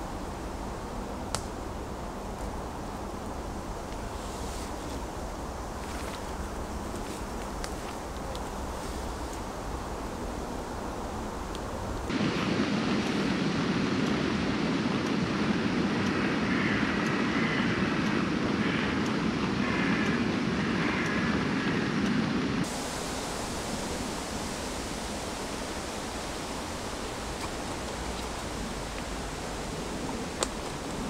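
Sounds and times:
gas stove burning hiss: 0:00.0 - 0:31.0
quiet background hiss: 0:22.7 - 0:31.0.

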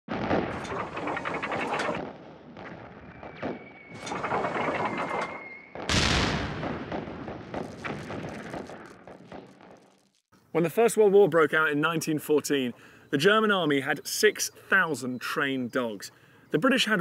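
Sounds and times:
heavy explosion: 0:00.1 - 0:10.2
rapid gunfire: 0:04.0 - 0:09.8.

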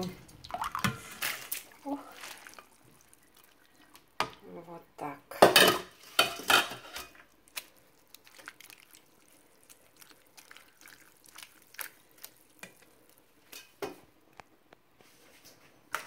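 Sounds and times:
water splashing in pot: 0:00.0 - 0:04.6, 0:05.4 - 0:13.9.

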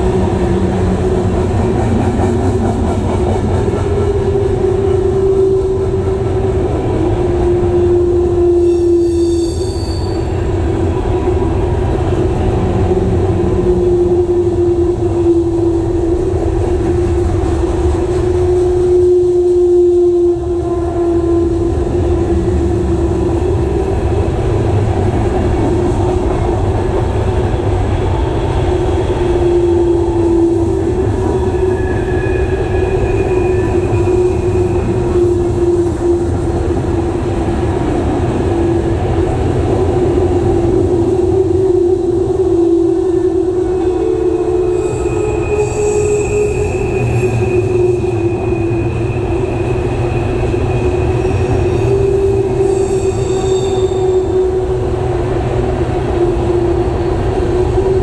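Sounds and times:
train wheels rumbling on rail: 0:00.0 - 0:58.0
high ringing squeal: 0:08.6 - 0:10.8, 0:29.0 - 0:36.0, 0:43.6 - 0:54.6.

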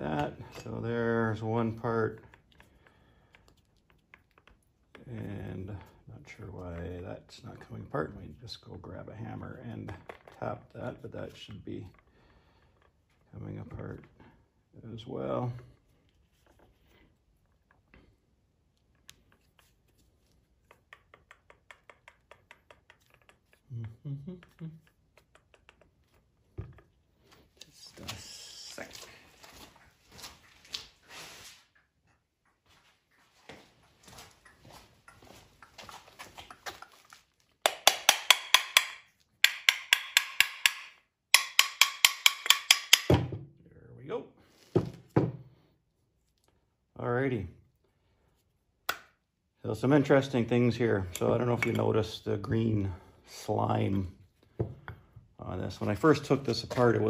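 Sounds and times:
faint clicks and metal taps: 0:00.1 - 0:07.7, 0:15.6 - 0:27.7, 0:31.7 - 0:43.1
hammer tapping on metal: 0:37.7 - 0:43.2.

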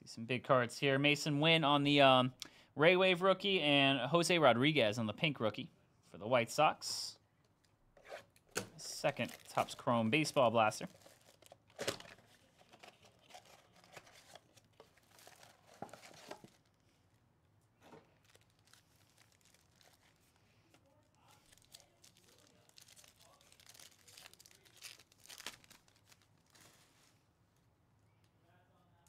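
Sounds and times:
plastic wrapping crinkling and tearing: 0:08.8 - 0:16.9, 0:17.9 - 0:27.2.

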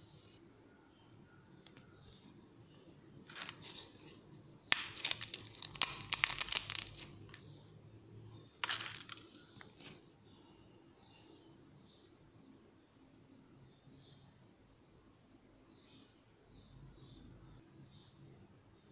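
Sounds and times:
potato chips crackling: 0:03.2 - 0:07.4, 0:08.5 - 0:10.0.

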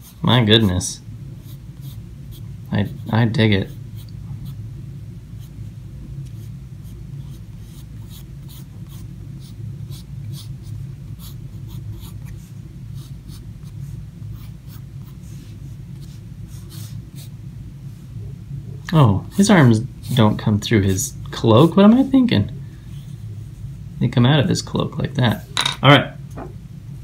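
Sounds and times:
steady low hum: 0:00.0 - 0:27.0
pencil sketching on paper: 0:01.4 - 0:04.6, 0:06.3 - 0:17.3, 0:19.3 - 0:21.2.

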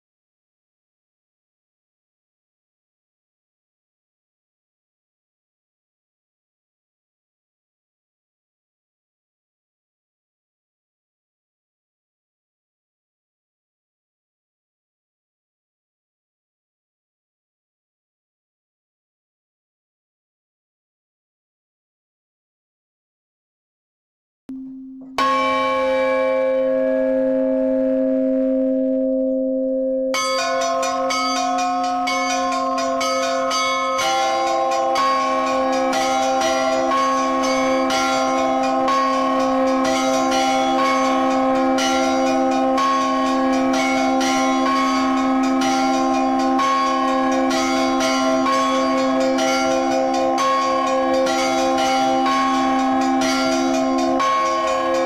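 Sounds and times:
small bells striking rhythmically: 0:25.0 - 0:28.1, 0:30.1 - 0:55.0
deep church bell ringing: 0:25.1 - 0:55.0.

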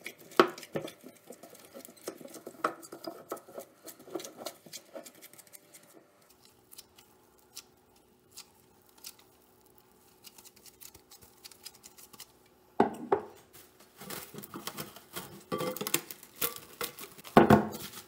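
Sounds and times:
dough squelching: 0:00.0 - 0:12.6.

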